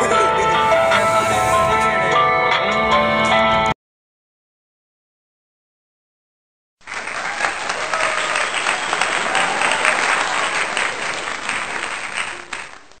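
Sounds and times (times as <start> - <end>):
crowd applauding: 6.8 - 13.0.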